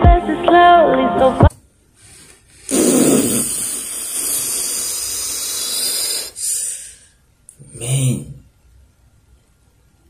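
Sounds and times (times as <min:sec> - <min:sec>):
man blowing out breath: 0:02.1 - 0:07.2.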